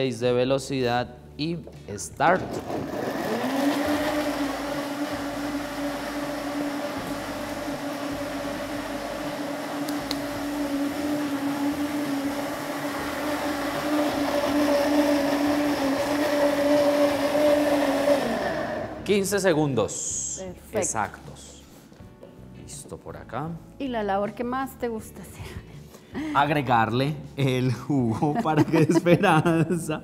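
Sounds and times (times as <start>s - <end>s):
blender motor humming: 2.4s - 19.1s.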